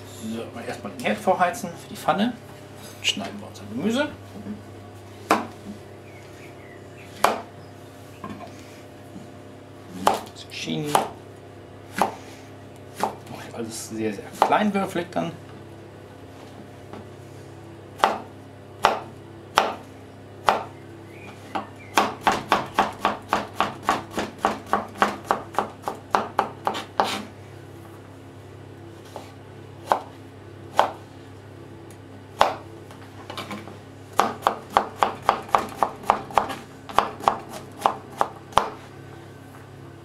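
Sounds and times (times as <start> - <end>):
low steady hum: 0.0 - 40.0
knife chopping on cutting board: 7.2 - 7.5, 10.0 - 10.3, 10.9 - 11.2, 11.9 - 12.2, 13.0 - 13.2, 14.3 - 14.6, 18.0 - 19.8, 20.4 - 20.7, 21.5 - 27.3, 29.1 - 30.1, 30.7 - 31.0, 32.4 - 32.6, 34.2 - 38.8.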